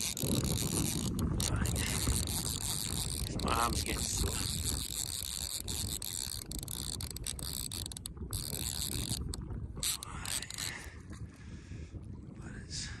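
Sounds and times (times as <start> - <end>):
fly reel ratchet buzzing: 0.0 - 10.8.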